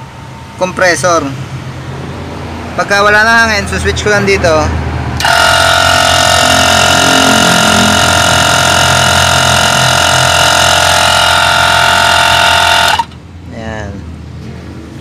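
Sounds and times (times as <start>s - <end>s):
air horn blast: 5.2s - 13.2s.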